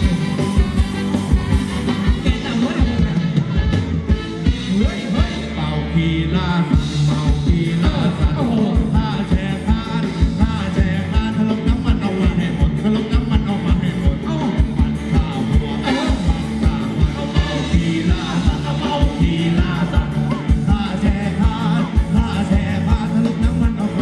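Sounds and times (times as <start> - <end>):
quick drum beat: 0.0 - 5.4
live band playing dance music: 0.0 - 24.0
person singing: 4.3 - 24.0.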